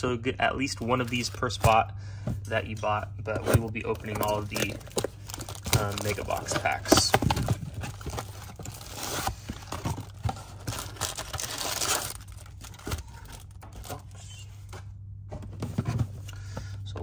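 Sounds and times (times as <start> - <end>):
cardboard and plastic crinkling: 0.6 - 1.8, 2.6 - 14.8.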